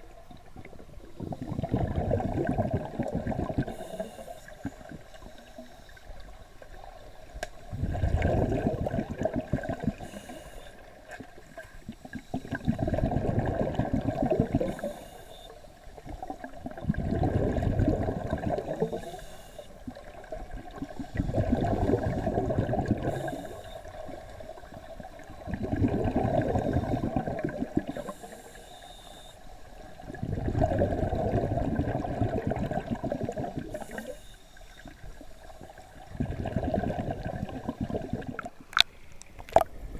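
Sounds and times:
diver exhaling bubbles underwater: 0.6s - 4.1s, 7.7s - 10.2s, 12.1s - 15.0s, 16.2s - 19.2s, 20.0s - 24.7s, 25.4s - 28.1s, 30.0s - 34.2s, 36.0s - 38.6s.

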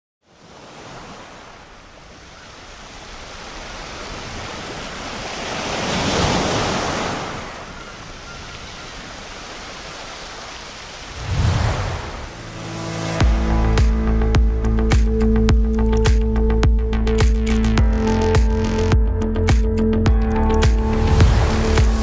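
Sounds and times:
sea surf rushing: 0.3s - 14.2s, 20.9s - 22.0s.

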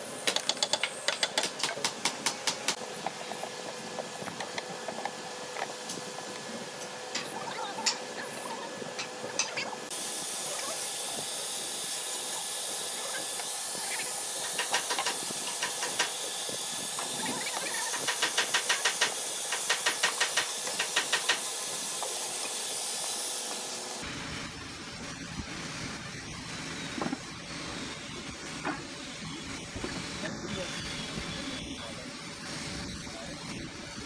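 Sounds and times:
angle grinder sanding wood: 6.2s - 24.1s.

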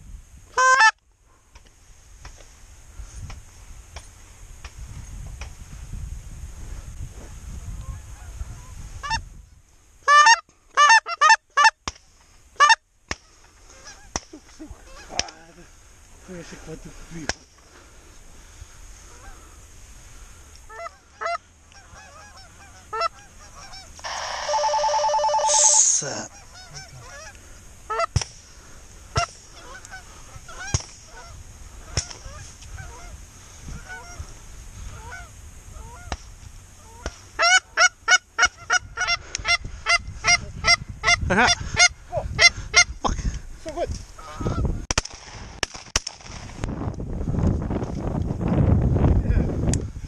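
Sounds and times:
goose honking: 0.6s - 1.0s, 20.7s - 28.1s, 29.2s - 33.2s, 33.8s - 34.2s, 36.8s - 42.9s.

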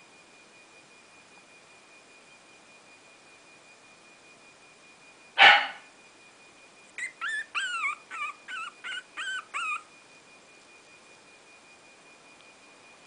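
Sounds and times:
puppy whimpering: 7.0s - 9.9s.

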